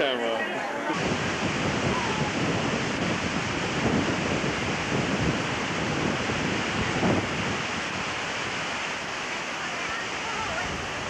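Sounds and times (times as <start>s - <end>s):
wind buffeting microphone: 0.8s - 11.0s.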